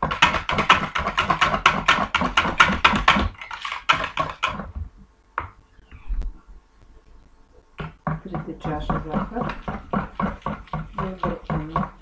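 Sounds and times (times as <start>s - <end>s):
whisk beating eggs in a bowl: 0.0s - 4.8s, 7.8s - 12.0s.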